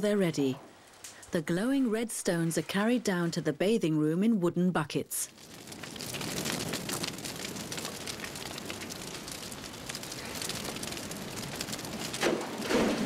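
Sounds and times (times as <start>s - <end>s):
fire crackling and hissing: 5.2s - 13.0s.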